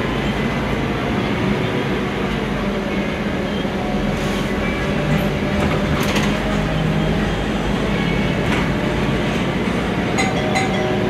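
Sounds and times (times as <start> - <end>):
bus engine hum: 0.0 - 11.0
road rumble: 0.0 - 11.0.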